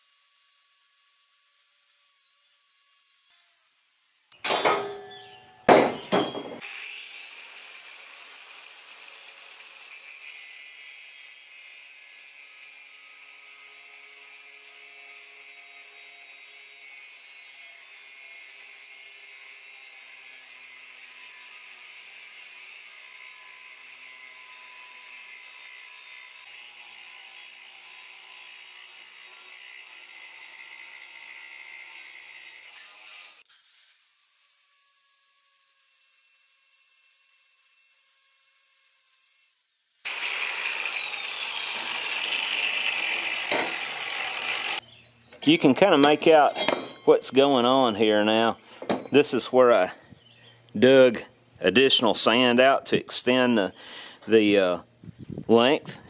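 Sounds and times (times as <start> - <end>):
grinder cutting metal: 0.0 - 49.8
metallic knocks: 4.4 - 6.6, 46.0 - 47.4.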